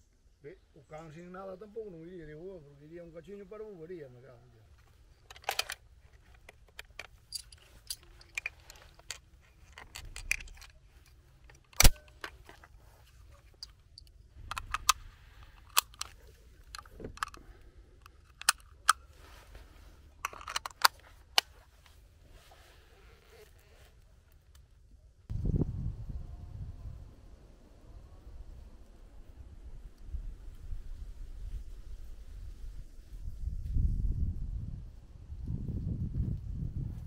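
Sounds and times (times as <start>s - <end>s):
rifle metallic clicks and snaps: 5.2s - 12.7s, 13.6s - 17.4s, 18.0s - 19.1s, 20.2s - 21.5s.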